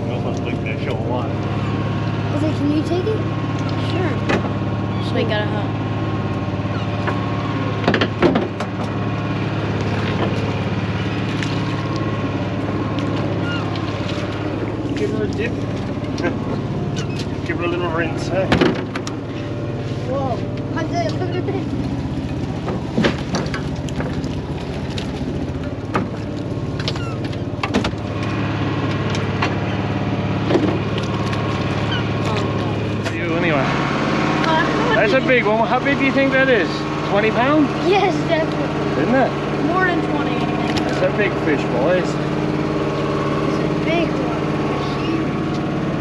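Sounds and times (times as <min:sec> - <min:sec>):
boat engine idling: 0:00.0 - 0:46.0
sharp knocks in boat: 0:03.7 - 0:04.6, 0:06.7 - 0:09.0, 0:09.6 - 0:12.1, 0:18.4 - 0:19.5, 0:20.4 - 0:33.2
loud splashing and knocking: 0:06.9 - 0:17.6, 0:21.7 - 0:41.6.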